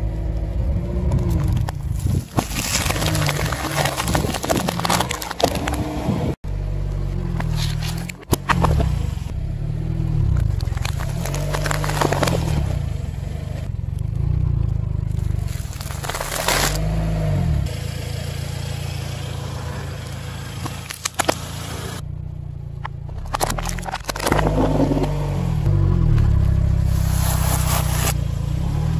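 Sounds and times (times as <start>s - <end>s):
car engine rumble: 0.0s - 28.9s
tyre crushing items on asphalt: 1.4s - 6.3s, 10.4s - 12.8s, 15.1s - 16.9s.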